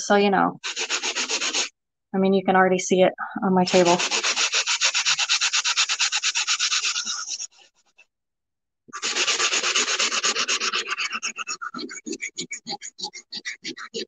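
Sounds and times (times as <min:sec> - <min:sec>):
sanding sponge scrubbing tile: 0:00.6 - 0:01.7, 0:03.7 - 0:07.6, 0:08.9 - 0:14.0.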